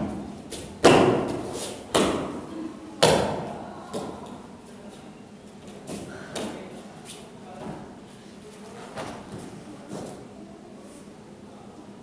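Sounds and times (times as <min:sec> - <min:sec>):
sharp slapping impacts on mats: 0:00.5 - 0:02.4.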